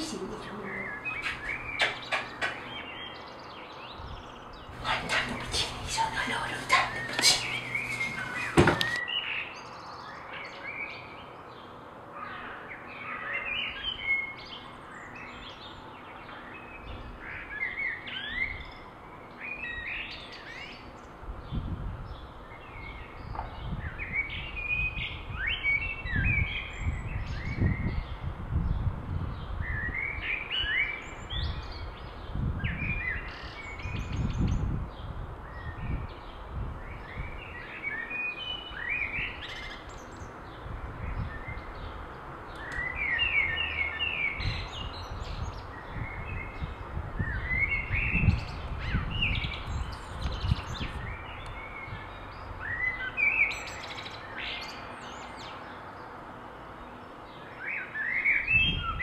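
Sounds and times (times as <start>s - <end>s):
small birds chirping: 0.0s - 11.8s, 29.4s - 56.2s.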